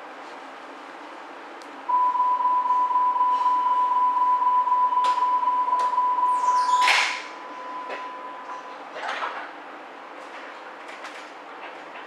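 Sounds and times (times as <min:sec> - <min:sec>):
train door warning beep: 0:01.9 - 0:08.9.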